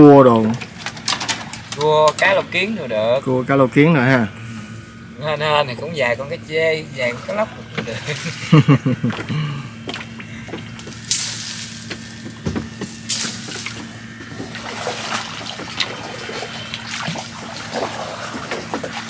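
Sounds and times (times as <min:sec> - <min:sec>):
steady low hum: 0:00.0 - 0:19.0
water splashing and trickling: 0:07.1 - 0:08.5, 0:13.1 - 0:19.0.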